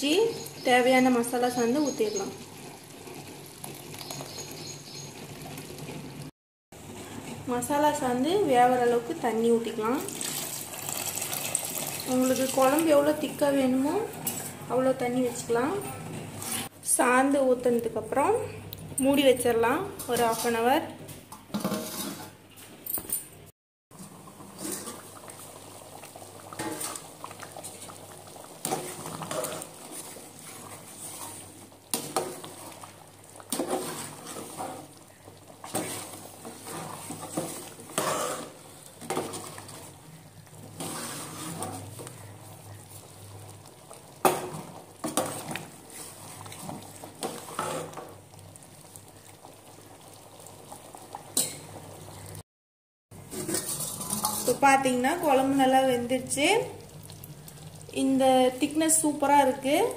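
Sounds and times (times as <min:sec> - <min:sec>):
curry bubbling in a pot: 0:00.1 - 0:07.3, 0:07.9 - 0:14.6, 0:23.9 - 0:52.4, 0:53.2 - 0:59.9
wooden ladle stirring: 0:23.9 - 0:48.2, 0:53.2 - 0:56.4.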